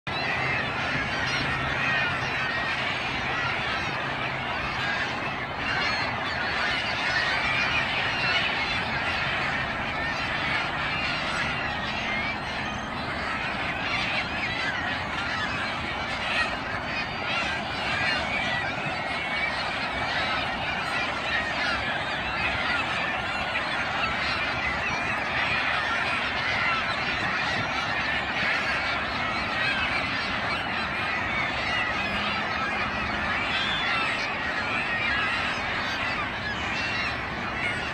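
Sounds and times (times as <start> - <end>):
gulls and waterbirds calling: 0.1 - 37.9.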